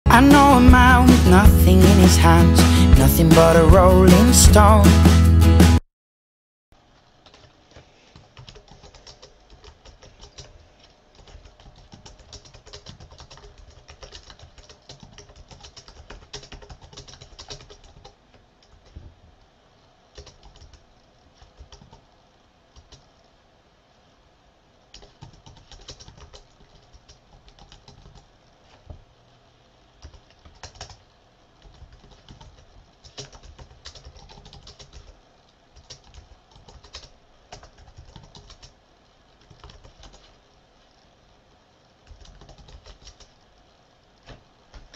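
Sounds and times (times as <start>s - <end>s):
keyboard typing: 7.2s - 19.1s, 20.1s - 20.8s, 21.4s - 22.1s, 22.7s - 23.1s, 24.9s - 28.3s, 30.0s - 31.0s, 31.6s - 38.8s, 39.4s - 40.4s, 42.0s - 43.4s, 44.2s - 44.9s.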